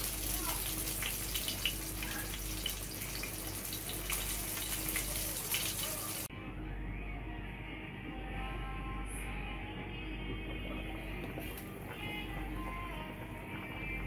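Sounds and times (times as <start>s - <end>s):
broth bubbling in a pan: 0.0s - 6.3s.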